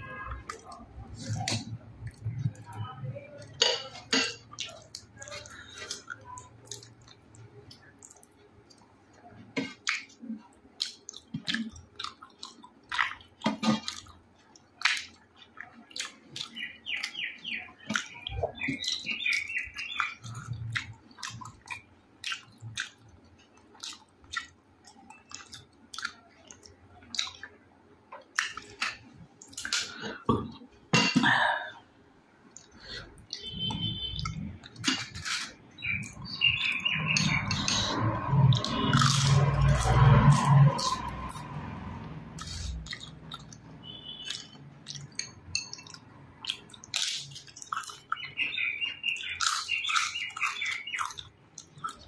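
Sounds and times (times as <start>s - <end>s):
wet chewing and lip smacks: 4.5s - 8.9s, 17.8s - 27.6s, 42.3s - 48.3s, 49.2s - 52.0s.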